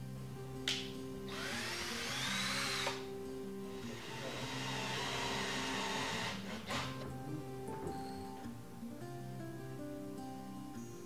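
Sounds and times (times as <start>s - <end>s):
light background music: 0.0s - 11.0s
cordless drill boring into wood: 1.3s - 3.1s, 3.7s - 7.1s
drill click: 3.9s - 7.2s.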